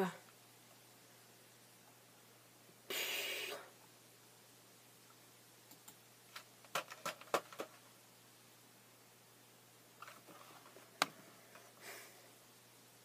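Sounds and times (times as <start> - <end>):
short hiss: 2.9 - 3.7.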